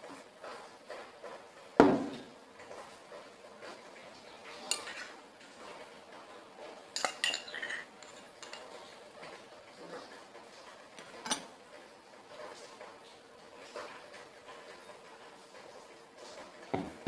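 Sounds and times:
metal spoon clinking on glass bowl: 7.0 - 8.7.

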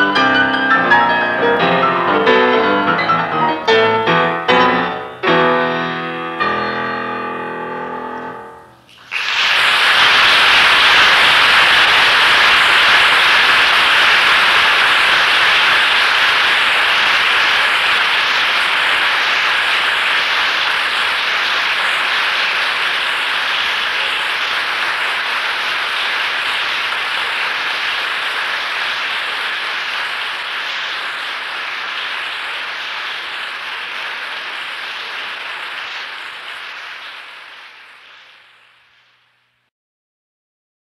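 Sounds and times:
audience applauding: 8.9 - 38.9.

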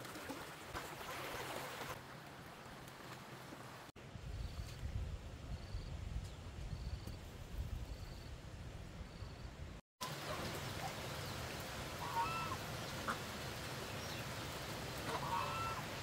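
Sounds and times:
outdoor background: 0.0 - 16.0
waterfowl calling: 12.0 - 13.3, 15.0 - 16.0.

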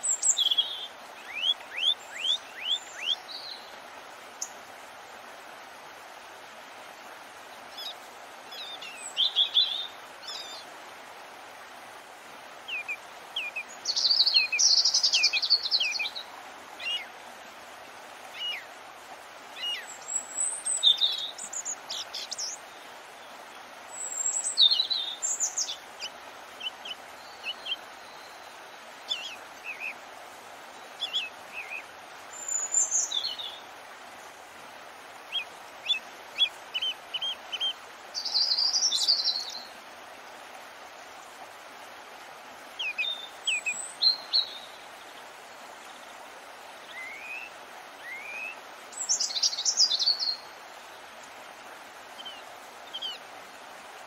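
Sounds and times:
water rushing softly: 0.0 - 54.0.

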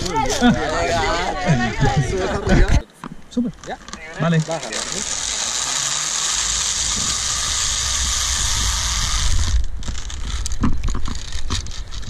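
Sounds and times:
wind rumbling on microphone: 0.0 - 2.8, 6.2 - 12.0
zipline pulleys hissing on cable: 4.2 - 10.6.

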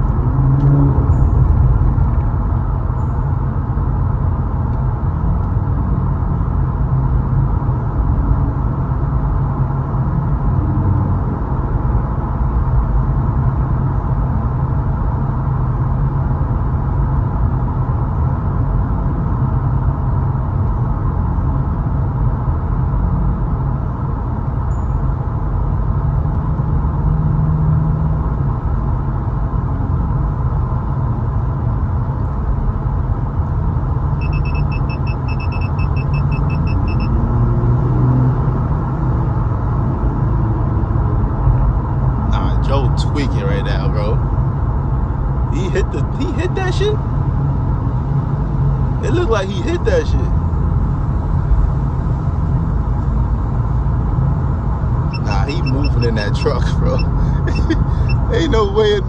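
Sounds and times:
car road and engine rumble: 0.0 - 59.0
rapid electronic beeping: 34.2 - 37.2, 55.1 - 58.9.

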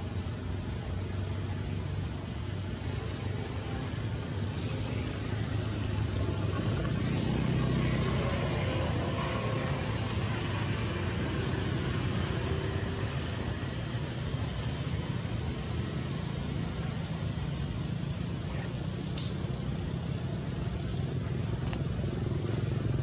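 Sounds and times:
road traffic rumble: 0.0 - 23.0
vehicle passing: 4.5 - 16.9.

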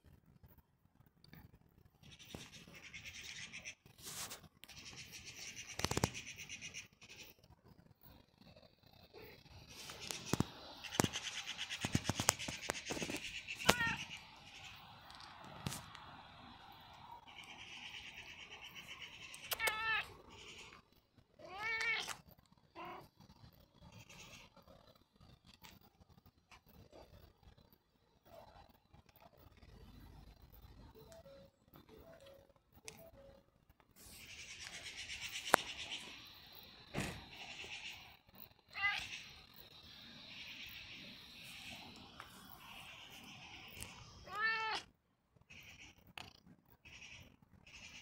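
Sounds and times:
cat meowing: 13.6 - 14.2, 19.4 - 20.2, 21.4 - 22.2, 22.8 - 23.1, 38.7 - 39.2, 44.2 - 44.9.

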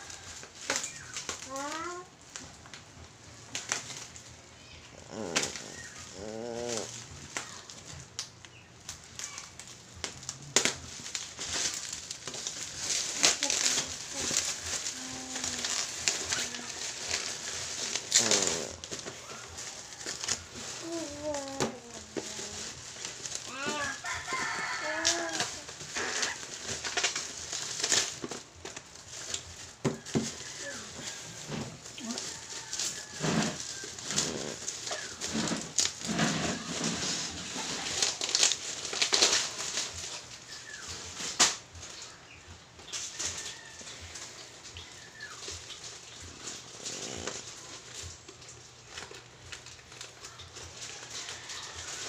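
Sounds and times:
scissors cutting bubble wrap: 0.1 - 2.8, 5.0 - 42.1, 44.6 - 52.0
person humming: 5.0 - 7.0, 13.4 - 16.8, 18.1 - 18.9, 20.8 - 22.8.

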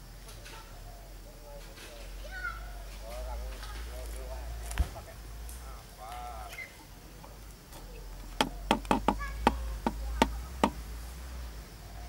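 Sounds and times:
harvesting tool chopping: 8.4 - 10.8.

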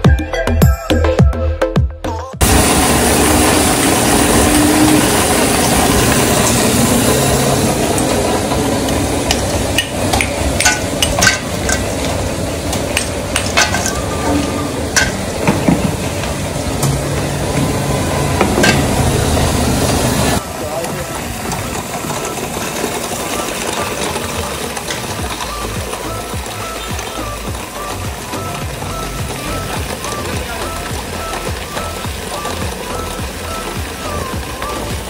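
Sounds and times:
motorised churner running: 2.4 - 35.0
ice cracking in steel bowl: 9.2 - 15.4.

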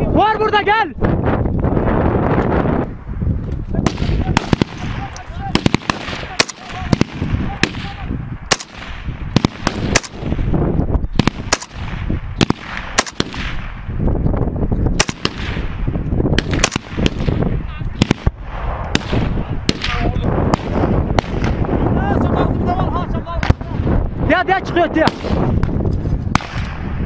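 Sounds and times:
rifle shots: 3.8 - 10.5, 11.1 - 13.9, 15.0 - 17.4, 18.0 - 21.6, 26.3 - 27.0.

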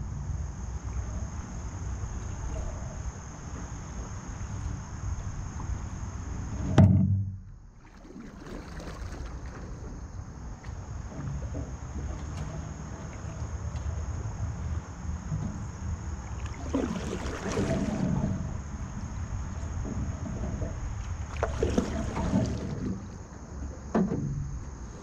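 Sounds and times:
insects trilling: 0.0 - 6.8, 7.6 - 25.0
paddle splashing in water: 7.8 - 14.0, 15.3 - 25.0.

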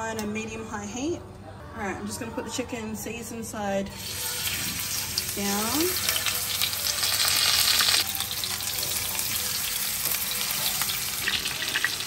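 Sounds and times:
chicken sizzling in hot oil: 4.0 - 12.0.

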